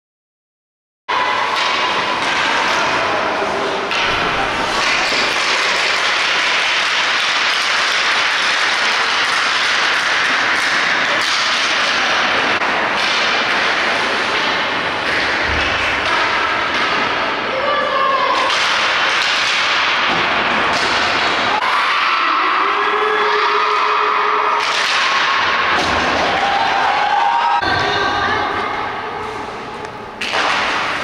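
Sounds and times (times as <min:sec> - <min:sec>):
hockey sticks and puck knocking: 0:01.4 - 0:03.2, 0:03.8 - 0:17.2, 0:18.3 - 0:21.6, 0:24.6 - 0:26.8, 0:29.8 - 0:31.0.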